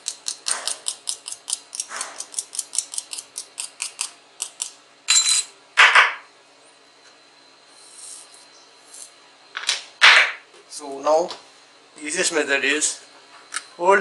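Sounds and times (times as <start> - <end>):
scraping sounds: 7.7 - 9.2.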